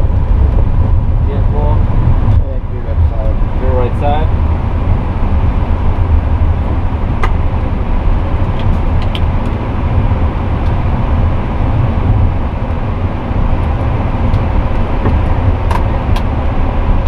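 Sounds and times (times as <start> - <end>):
low rumble of cockpit noise: 0.0 - 17.0.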